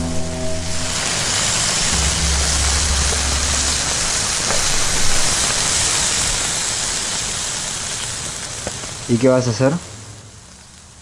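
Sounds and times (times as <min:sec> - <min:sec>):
low hum: 0:00.0 - 0:07.3
meat sizzling on grill: 0:00.2 - 0:11.0.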